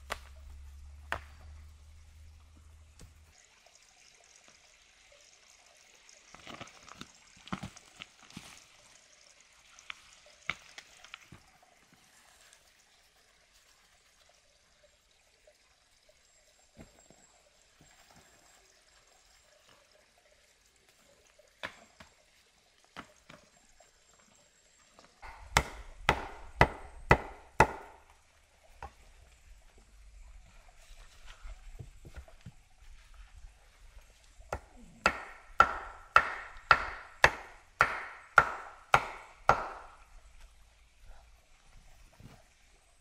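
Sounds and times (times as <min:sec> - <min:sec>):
wood being chopped: 0:01.1 - 0:01.4, 0:25.2 - 0:28.0, 0:34.5 - 0:40.0.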